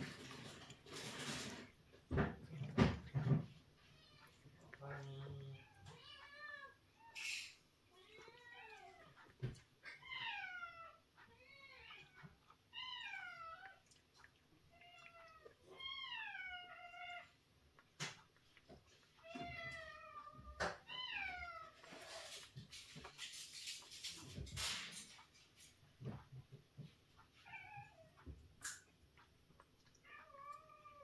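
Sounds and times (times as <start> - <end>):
cat meowing: 30.0 - 31.0.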